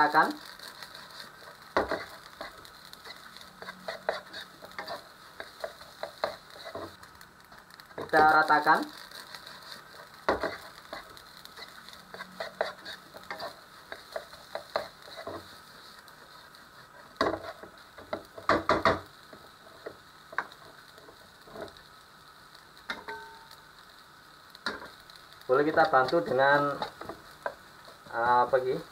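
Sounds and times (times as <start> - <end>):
light sizzling: 0.0 - 28.9
spatula scraping a frying pan: 0.4 - 7.0, 8.9 - 21.8.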